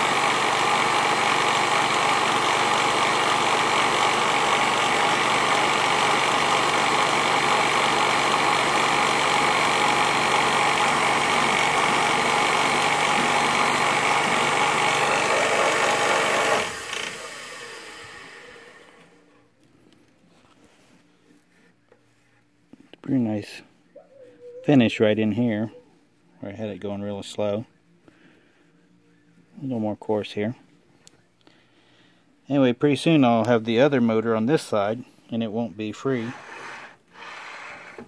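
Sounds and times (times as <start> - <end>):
lathe cutting a shaft: 0.0 - 19.0.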